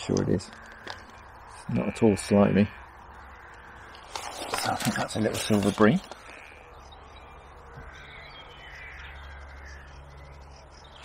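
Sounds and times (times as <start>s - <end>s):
faint crow-like caws: 0.0s - 11.0s.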